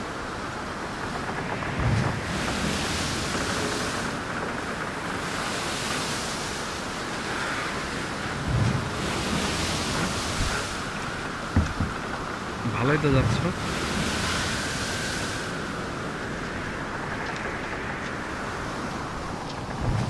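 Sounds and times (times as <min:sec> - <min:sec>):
wind rushing across microphone: 0:00.0 - 0:20.0
wind buffeting thumps: 0:00.4 - 0:20.0.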